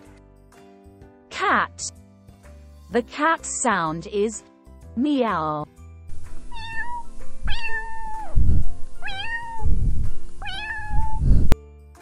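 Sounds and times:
low thumps: 6.1 - 11.6
cat meowing: 6.4 - 9.8, 10.4 - 11.4.

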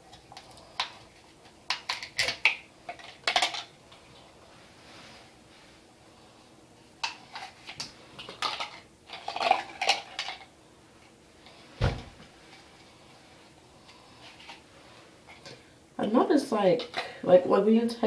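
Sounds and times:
dull thump: 11.8 - 12.2.

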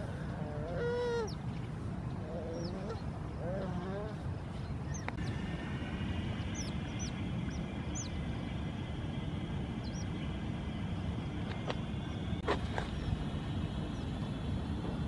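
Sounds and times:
low background rumble: 0.0 - 15.0
otters chirping: 2.3 - 5.4, 6.3 - 8.6.

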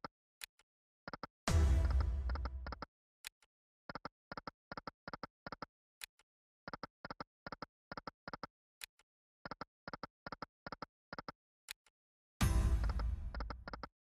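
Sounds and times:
slot reel-stop ticks: 12.4 - 13.9.

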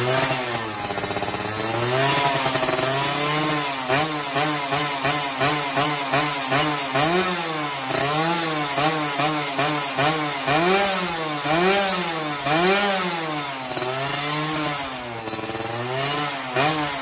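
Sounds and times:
two-stroke engine revving: 0.0 - 17.0.

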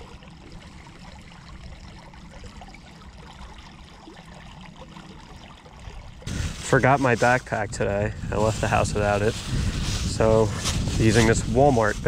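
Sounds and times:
stream running over gravel: 0.0 - 12.0
low rumble: 6.2 - 11.6.

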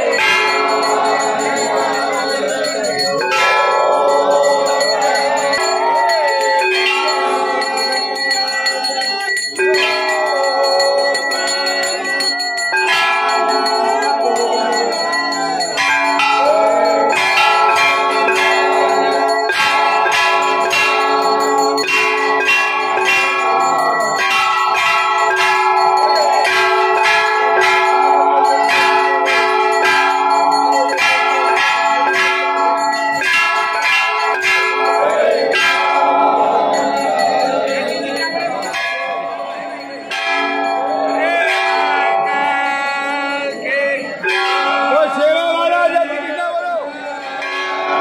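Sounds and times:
temple bells ringing: 0.0 - 48.0.

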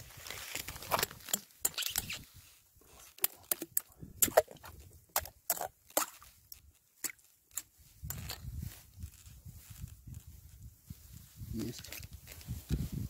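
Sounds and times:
ice shards crunching: 0.0 - 2.2, 2.9 - 8.4
metal scoop scraping ice: 0.2 - 2.3.

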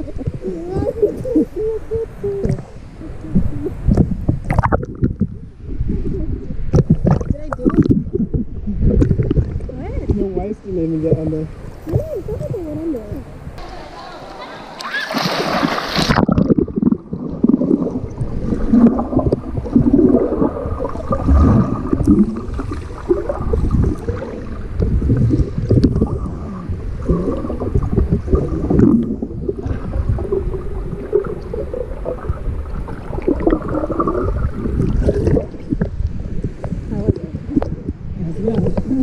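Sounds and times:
muffled underwater gurgling: 0.0 - 13.2, 16.1 - 39.0
swimmer splashing into water: 14.4 - 16.5.

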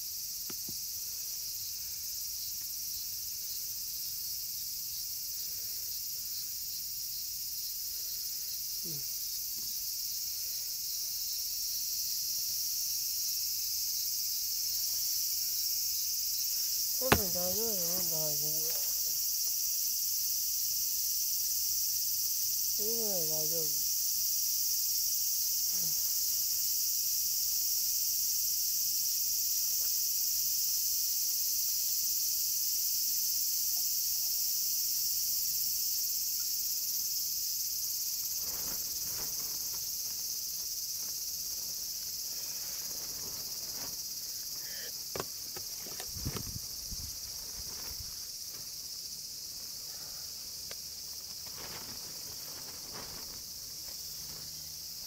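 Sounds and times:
high-pitched insect chorus: 0.0 - 55.0
soft knocks: 17.0 - 17.6.

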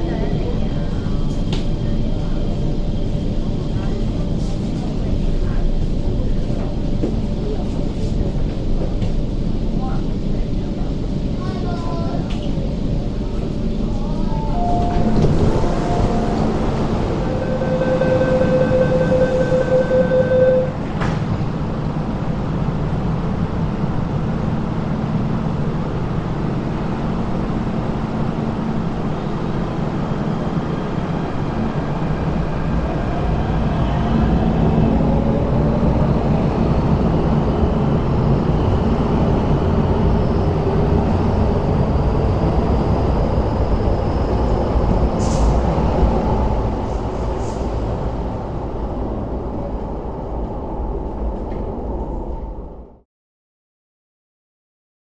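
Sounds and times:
train pulling out: 12.4 - 22.0, 28.9 - 52.7
door closing warning beeps: 14.6 - 16.5.

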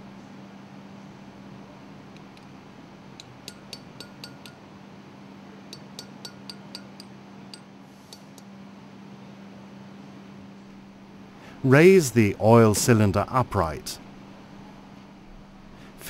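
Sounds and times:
hammer tapping steel punch: 3.2 - 4.6, 5.7 - 8.4.

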